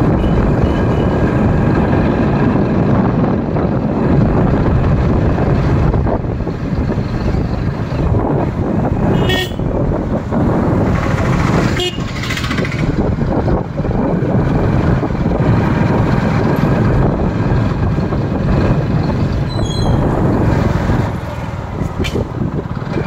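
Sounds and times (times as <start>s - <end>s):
motorcycle engine running: 0.0s - 23.0s
road and wind noise: 0.0s - 23.0s
short high squeak: 19.4s - 20.0s.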